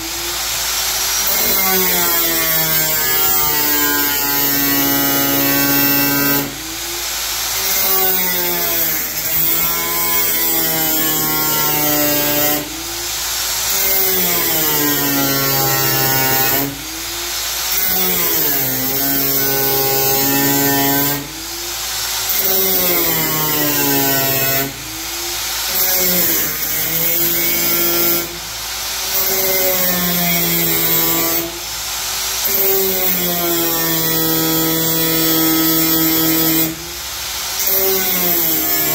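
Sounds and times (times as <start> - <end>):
angle grinder cutting metal: 0.0 - 28.4, 29.0 - 31.6, 32.4 - 38.9.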